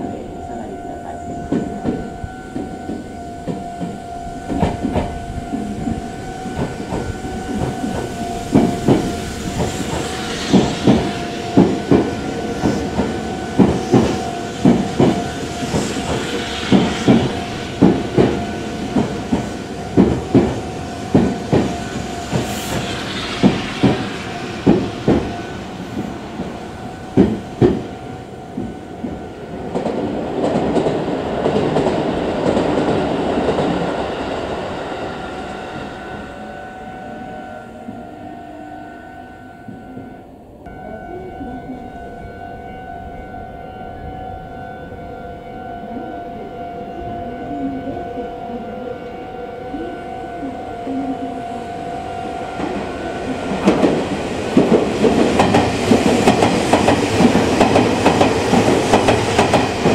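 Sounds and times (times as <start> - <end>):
train rumble and hiss: 0.0 - 39.0, 39.7 - 59.9
train wheels clicking over rail joints: 6.5 - 27.9, 53.5 - 59.9.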